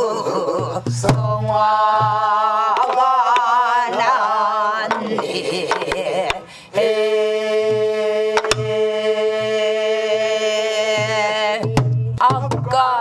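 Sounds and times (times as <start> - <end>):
woman singing folk song: 0.0 - 13.0
stick striking barrel drum: 0.6 - 4.2, 4.8 - 6.4, 7.7 - 8.8, 11.0 - 13.0.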